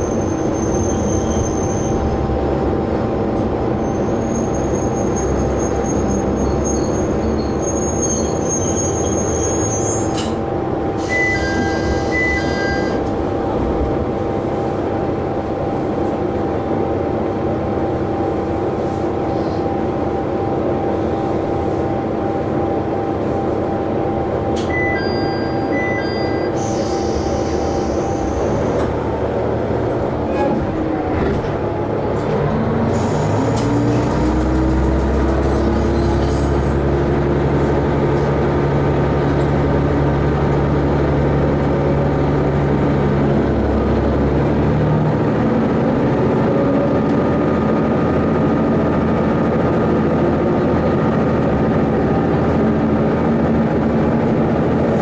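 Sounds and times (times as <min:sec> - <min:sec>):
short high beeps: 0:24.7 - 0:26.6.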